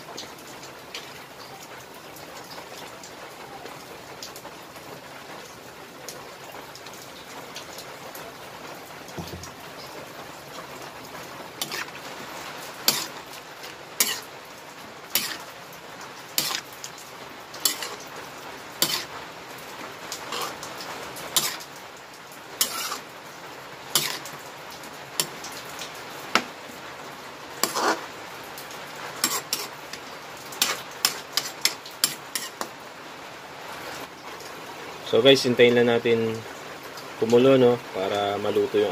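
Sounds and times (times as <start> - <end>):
sauce simmering hiss: 9.2 - 34.0
metal spatula scraping a wok: 11.6 - 12.0, 12.8 - 13.3, 14.0 - 14.3, 15.1 - 15.5, 16.4 - 16.8, 17.6 - 18.1, 18.8 - 19.1, 20.3 - 20.6, 21.4 - 21.7, 22.6 - 23.1, 23.9 - 24.3, 27.6 - 28.1, 29.2 - 30.0, 30.6 - 32.7.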